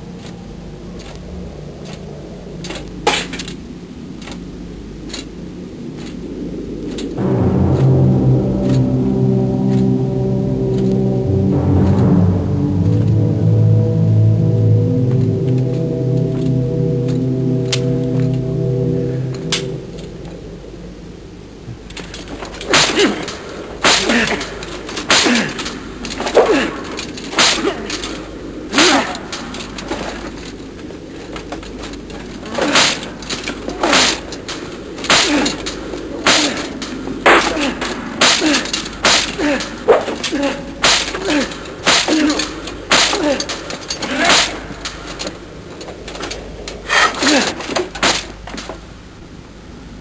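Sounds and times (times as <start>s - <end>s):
weapons crashing: 21.8s - 48.9s.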